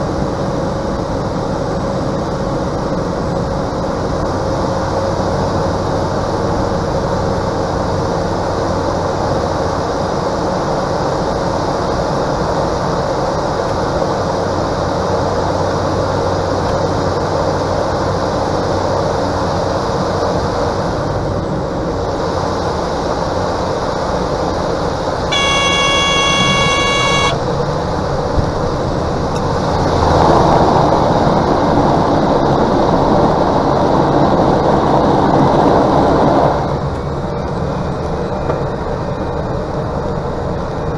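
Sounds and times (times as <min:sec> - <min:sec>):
aircraft rolling on runway: 0:00.0 - 0:40.9
turboprop engine and propeller: 0:00.0 - 0:40.9
warning horn: 0:25.3 - 0:27.5.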